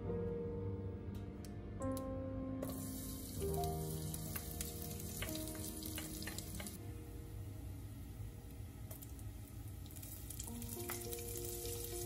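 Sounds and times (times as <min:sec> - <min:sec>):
soft background music: 0:00.0 - 0:12.0
vegetables sizzling in hot oil: 0:02.6 - 0:06.8, 0:08.9 - 0:12.0.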